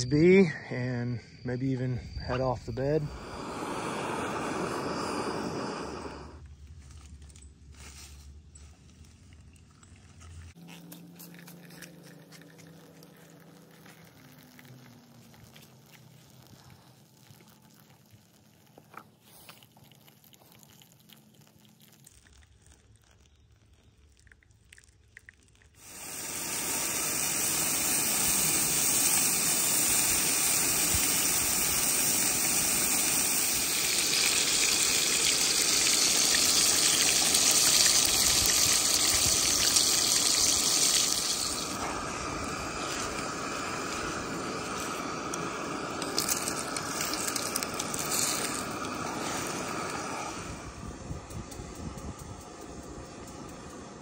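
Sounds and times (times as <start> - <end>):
food sizzling in a frying pan: 25.8 - 41.8, 42.6 - 50.0.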